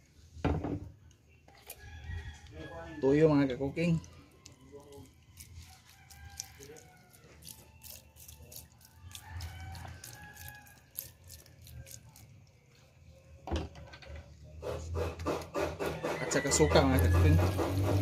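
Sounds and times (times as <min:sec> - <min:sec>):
rooster crowing: 0:01.7 - 0:03.5, 0:05.2 - 0:08.1, 0:08.7 - 0:12.2, 0:15.7 - 0:18.0.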